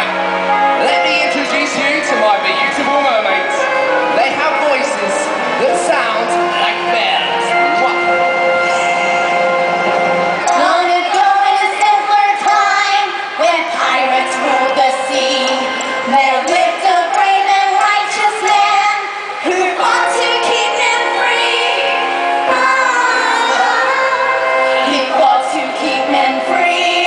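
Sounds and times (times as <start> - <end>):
upbeat pop song with vocals: 10.4 - 27.0.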